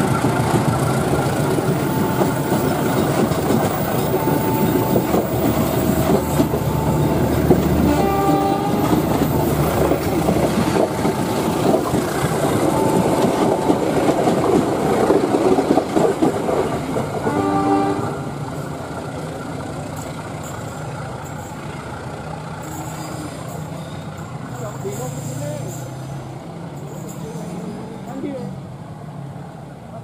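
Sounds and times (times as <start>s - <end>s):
train wheels clattering on rails: 0.0s - 17.9s
train horn: 7.7s - 9.1s, 17.2s - 18.3s.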